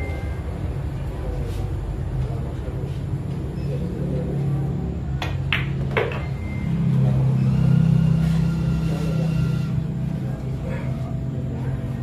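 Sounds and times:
steady low hum: 0.0s - 12.0s
pool balls clicking: 5.2s - 6.4s.

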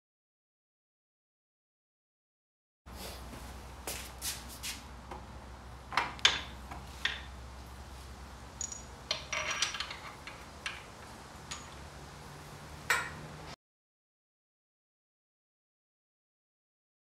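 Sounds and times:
metal clinks and knocks: 8.6s - 11.8s.

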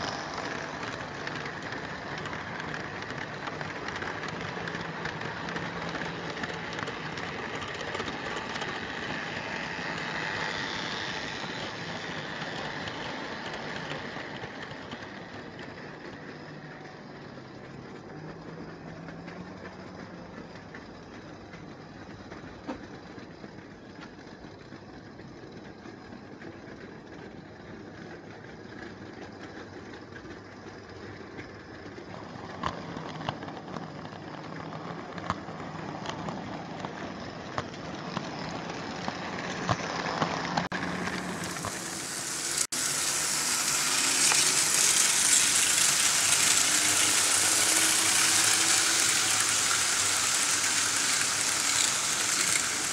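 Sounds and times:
model train motor whirring: 0.0s - 17.0s, 31.3s - 52.9s
hiss-like rumble of trains: 0.0s - 52.9s.

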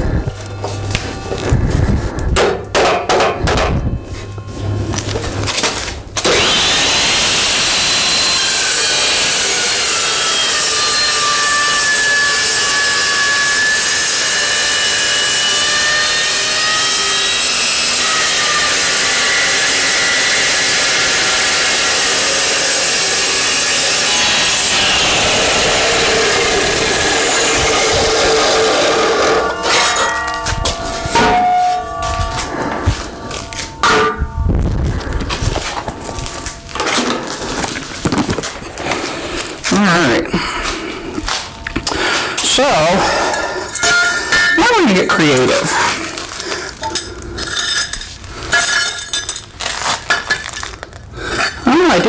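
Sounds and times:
chop saw cutting steel: 5.5s - 34.3s, 41.3s - 52.0s
saw blade screeching: 6.2s - 34.2s, 41.9s - 49.1s
metal clanking: 26.6s - 38.9s, 41.3s - 44.7s.

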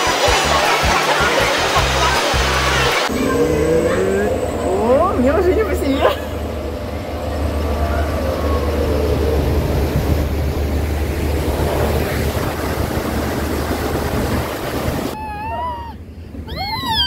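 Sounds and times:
wind buffeting microphone: 6.4s - 15.2s.

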